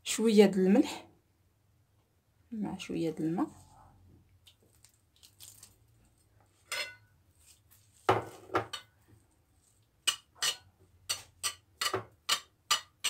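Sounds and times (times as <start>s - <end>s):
spoon scraping ceramic plate: 6.6s - 7.1s, 10.0s - 13.0s.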